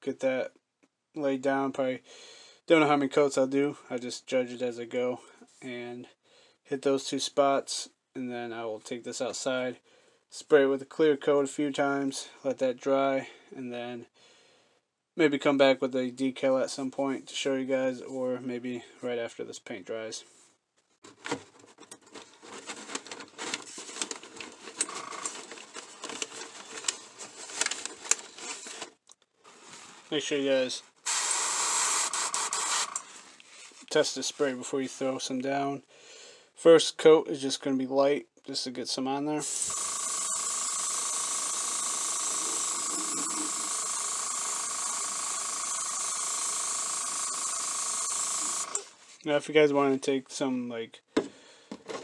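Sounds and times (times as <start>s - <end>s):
air compressor whine: 31.1s - 33.1s, 39.4s - 48.9s.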